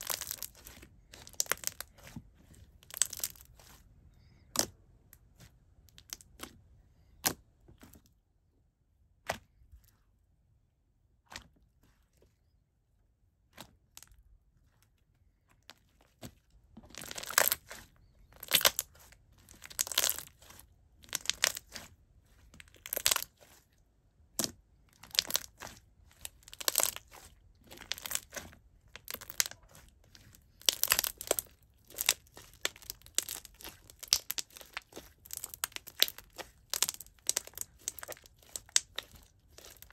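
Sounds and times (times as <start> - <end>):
slime squelching: 0.0 - 8.0, 15.4 - 39.9
slime popping: 24.4 - 39.9.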